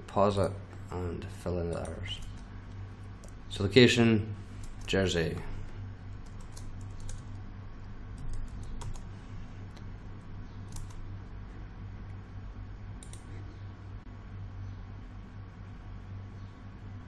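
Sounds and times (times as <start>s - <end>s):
steady low hum: 0.0s - 17.0s
keyboard keystrokes and clicks: 6.2s - 7.3s, 8.2s - 9.1s, 10.6s - 11.0s, 13.0s - 13.3s.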